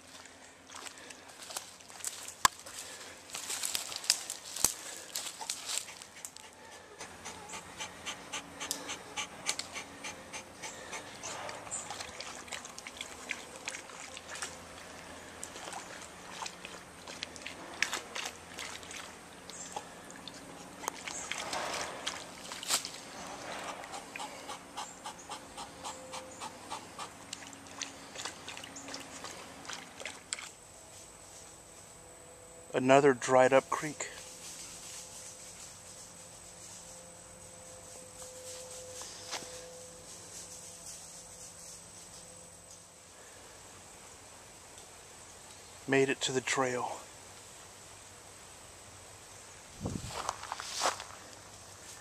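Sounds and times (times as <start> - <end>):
dog panting: 5.4 - 11.6, 23.6 - 27.2
water sloshing: 10.8 - 24.1, 27.2 - 30.6.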